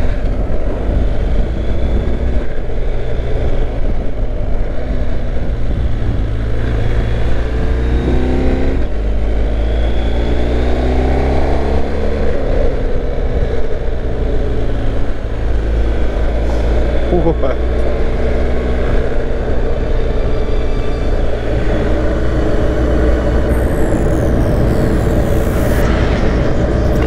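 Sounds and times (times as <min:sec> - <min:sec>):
wind rumble on microphone: 0:00.0 - 0:27.0
motorcycle engine running: 0:11.8 - 0:27.0.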